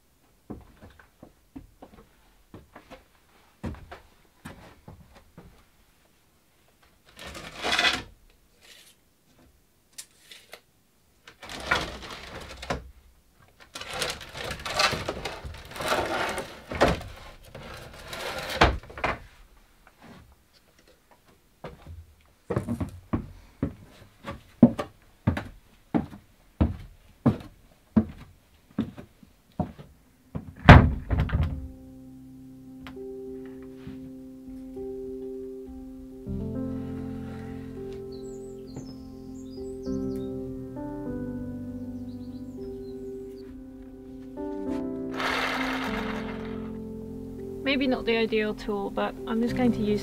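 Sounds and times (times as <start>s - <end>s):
heavy wooden thunk: 30.4s - 31.7s
background music: 31.4s - 50.0s.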